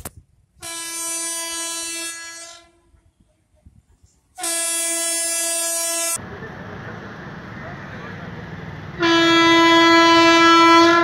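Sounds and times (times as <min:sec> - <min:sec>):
train horn blasts: 0:00.6 - 0:03.0, 0:04.4 - 0:06.2, 0:09.0 - 0:11.0.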